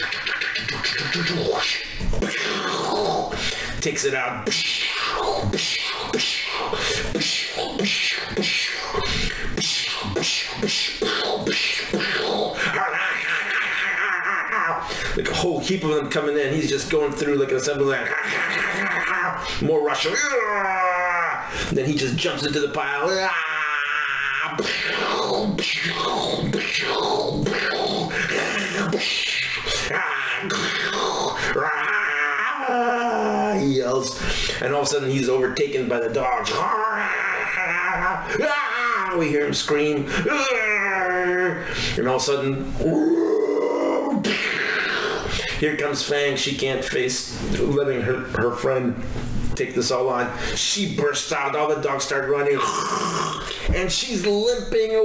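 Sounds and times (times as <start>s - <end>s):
man making mouth sound effects: 0.0s - 15.5s, 17.8s - 21.5s, 22.8s - 34.0s, 35.7s - 41.6s, 42.7s - 45.4s, 52.4s - 53.8s.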